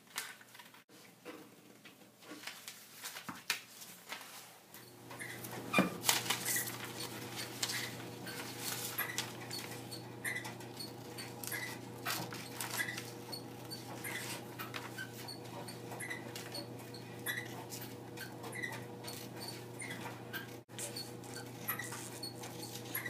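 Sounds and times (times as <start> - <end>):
short high squeaks: 5.2 - 7.1, 7.7 - 11.8, 12.4 - 17.6, 18.2 - 23.0
scissors snipping paper: 5.4 - 9.8, 10.9 - 16.5, 19.1 - 19.6, 20.7 - 23.0.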